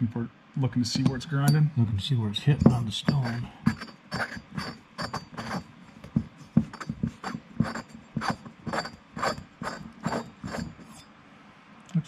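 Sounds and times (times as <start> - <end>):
cutting tool rasping on metal: 2.6 - 11.1.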